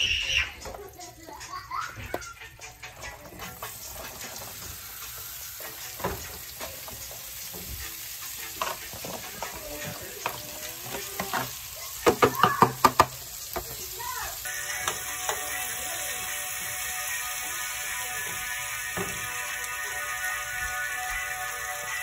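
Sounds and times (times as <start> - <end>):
vegetables sizzling in butter: 0.1 - 22.0
spoon knocking bowl and pan: 5.8 - 13.8, 14.8 - 15.6.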